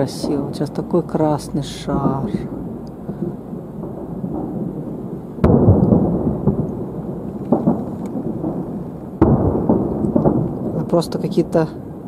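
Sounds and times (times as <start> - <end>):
low rumble: 0.0 - 12.0
small fireworks cracks: 2.0 - 11.9
distant fireworks bang: 2.0 - 12.0.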